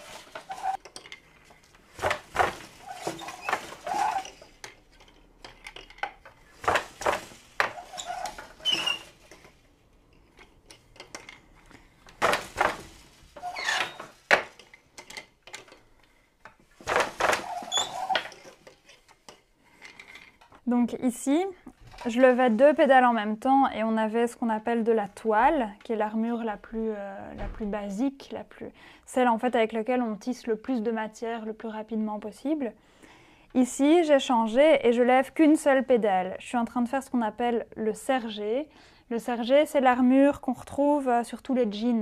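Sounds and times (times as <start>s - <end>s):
wooden loom clattering: 0.0s - 9.5s, 12.1s - 15.8s, 16.8s - 19.0s.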